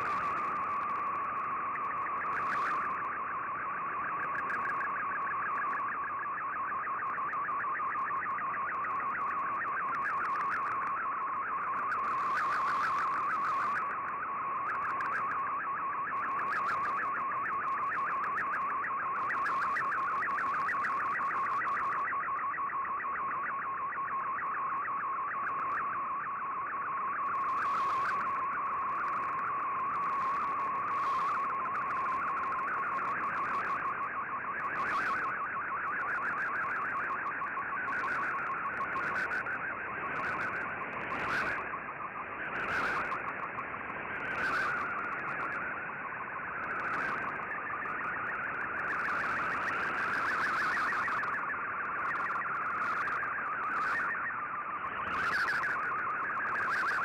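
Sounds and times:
radio static hiss: 0:00.0 - 0:03.2, 0:11.7 - 0:15.3, 0:27.4 - 0:33.8, 0:37.9 - 0:57.0
warbling data tone: 0:00.0 - 0:57.0.

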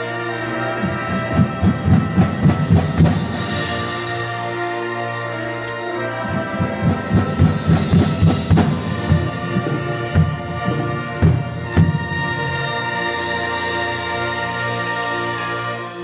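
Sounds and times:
brass and winds chords: 0:00.0 - 0:16.0
drum hits: 0:06.6 - 0:12.4.

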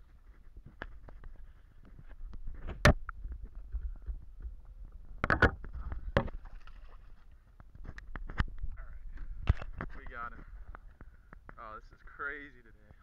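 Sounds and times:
fish splashing water: 0:06.2 - 0:07.5.

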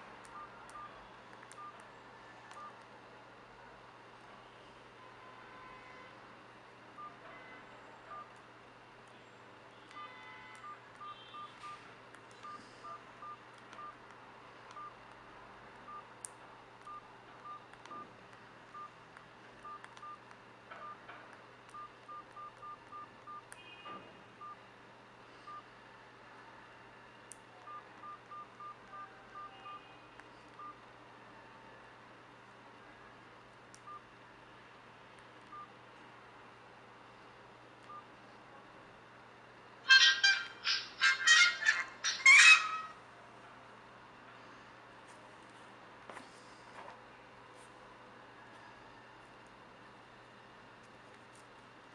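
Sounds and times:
phone keypad beeps: 0:01.5 - 0:01.8, 0:02.5 - 0:02.8, 0:09.9 - 0:14.0, 0:16.8 - 0:18.0, 0:19.6 - 0:20.2, 0:21.7 - 0:23.6, 0:27.7 - 0:29.9.

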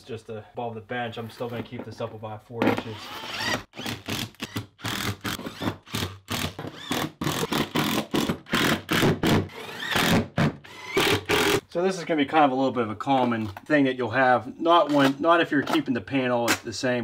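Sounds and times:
impact driver driving screws: 0:02.8 - 0:11.6.

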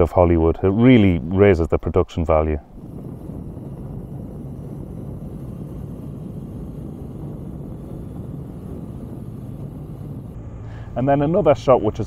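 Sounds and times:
wind and road noise: 0:00.0 - 0:12.0
motorcycle engine hum: 0:02.5 - 0:12.0.

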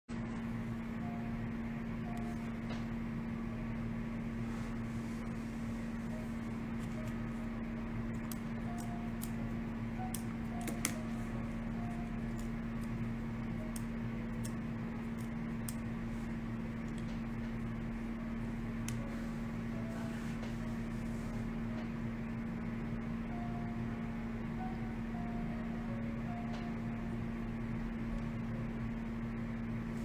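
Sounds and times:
steady room hum: 0:00.1 - 0:30.0
click: 0:18.8 - 0:19.0.

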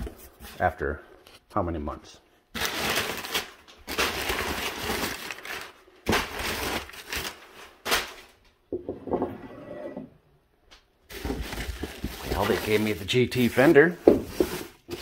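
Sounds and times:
packing paper crinkling: 0:02.5 - 0:08.4, 0:11.1 - 0:15.0
ceramic mug set on wooden table: 0:08.7 - 0:10.3.

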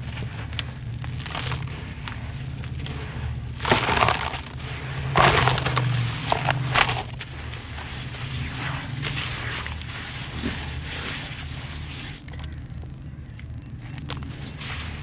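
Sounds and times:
hands crumbling gritty sand: 0:00.0 - 0:12.4
steady low hum: 0:00.0 - 0:15.0.

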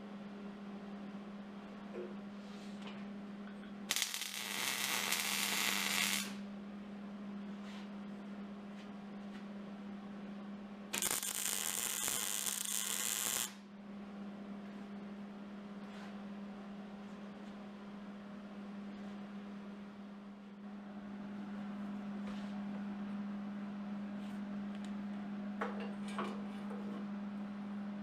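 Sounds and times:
steady electrical hum: 0:00.0 - 0:28.0
welder arc crackling: 0:03.9 - 0:06.4, 0:10.9 - 0:13.6.

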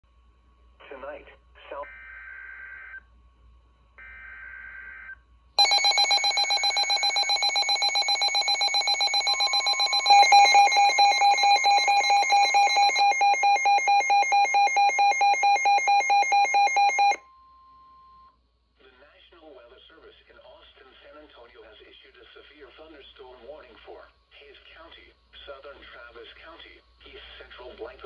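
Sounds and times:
multi-pitched alarm beeping: 0:05.6 - 0:17.2
warbling data tones: 0:05.6 - 0:17.2.

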